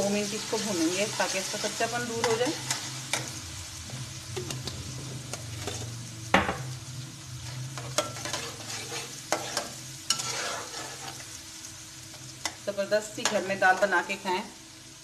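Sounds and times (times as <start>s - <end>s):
food sizzling in hot oil: 0.0s - 15.0s
metal spatula scraping pan: 4.4s - 6.0s, 7.4s - 11.4s.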